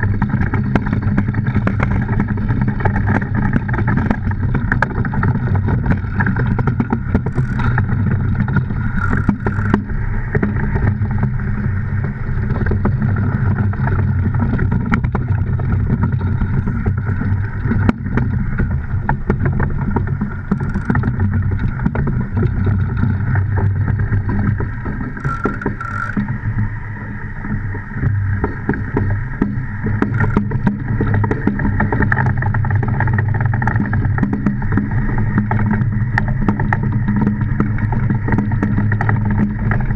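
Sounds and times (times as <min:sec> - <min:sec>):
runners rumbling on ice: 0:00.0 - 0:39.9
sharp clicks: 0:08.9 - 0:09.8, 0:20.5 - 0:21.1, 0:25.2 - 0:26.3.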